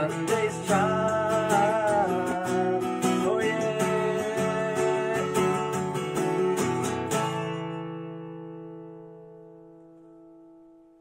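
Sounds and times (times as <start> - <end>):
acoustic guitar strumming: 0.0 - 11.0.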